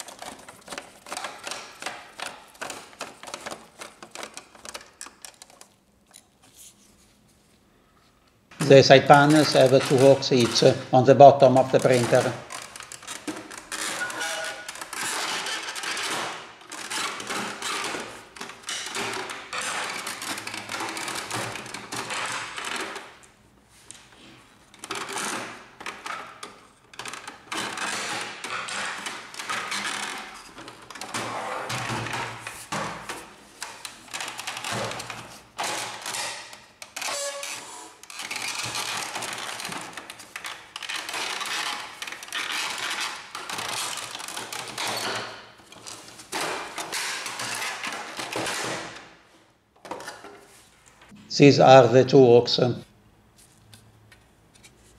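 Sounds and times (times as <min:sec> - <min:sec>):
plastic scraping and clicking: 0:00.0 - 0:06.6, 0:08.8 - 0:23.1.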